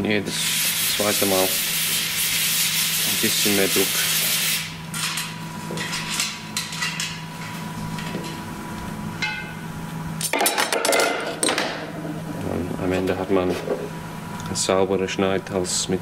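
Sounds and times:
shop hum: 0.0 - 16.0.

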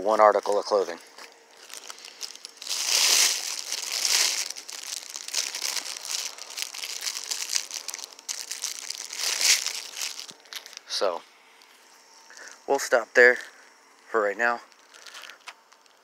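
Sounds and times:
rustling crinkling close to microphone: 0.7 - 11.0, 14.7 - 16.0.

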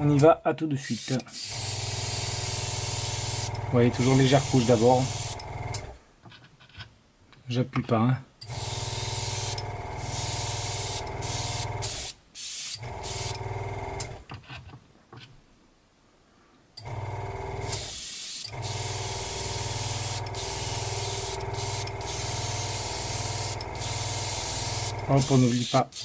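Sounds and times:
airbrush spraying hiss: 0.9 - 3.5, 4.1 - 5.4, 9.0 - 13.4, 17.7 - 26.0
air compressor humming: 1.0 - 6.0, 8.4 - 14.2, 16.8 - 26.0.

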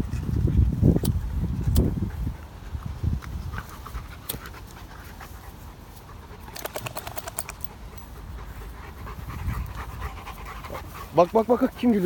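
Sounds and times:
dogs panting: 0.0 - 12.0
sharp clicks: 6.5 - 7.7.

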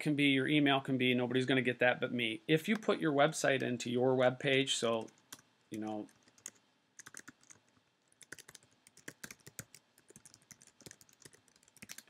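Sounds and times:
faint keyboard typing: 4.9 - 12.0.

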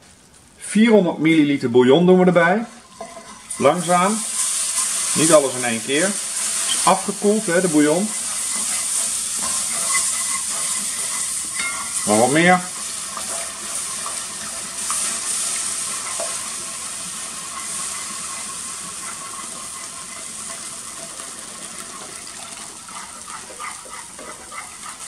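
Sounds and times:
roux sizzling in a pot: 2.1 - 25.0
spatula scraping a pot: 2.8 - 5.4, 6.0 - 25.0
liquid pouring into a pot: 7.9 - 25.0.

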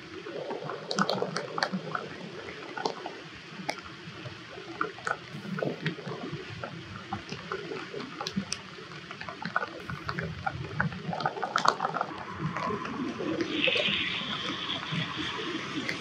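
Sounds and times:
rainwater trickling and dripping: 4.5 - 16.0.

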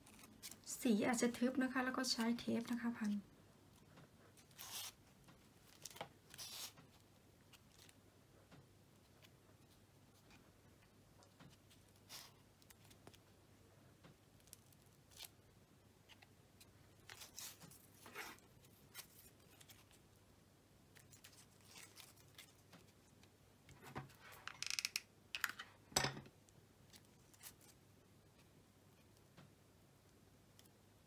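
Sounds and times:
tape rustling: 0.0 - 0.7, 3.8 - 8.0, 16.1 - 20.0, 20.9 - 25.6
snips: 4.4 - 5.0, 5.8 - 6.8.

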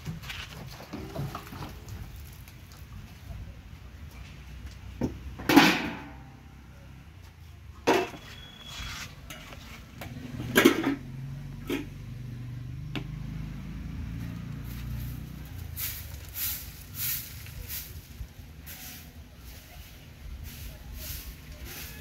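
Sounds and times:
metal cookware clanking: 10.3 - 12.0.

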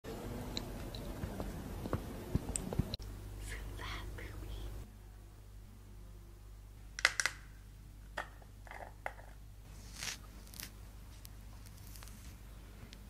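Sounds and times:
soft scraping rustle: 9.7 - 13.0.

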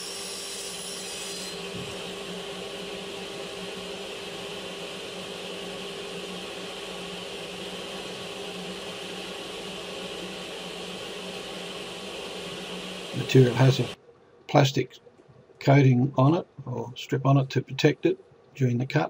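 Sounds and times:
table saw humming: 0.0 - 14.0.

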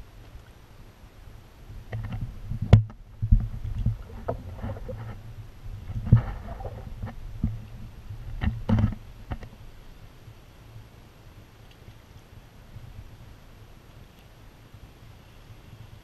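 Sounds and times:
low rumble: 1.4 - 10.0
paddle strokes splashing water: 1.9 - 9.4.

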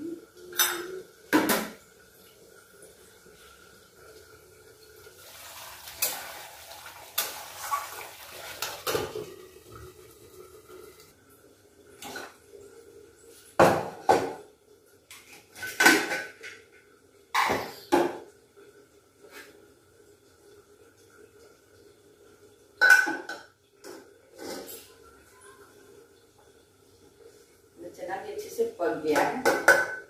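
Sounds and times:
metal pots clanking: 0.4 - 1.8, 22.8 - 25.5, 29.1 - 30.0.

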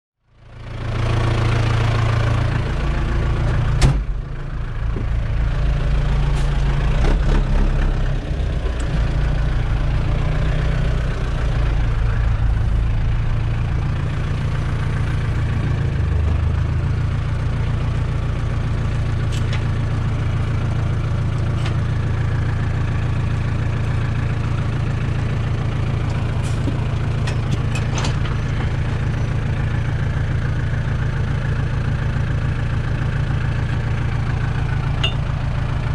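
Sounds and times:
tractor diesel engine idling: 0.3 - 35.9
cab door shutting with a bang: 3.8 - 4.2.

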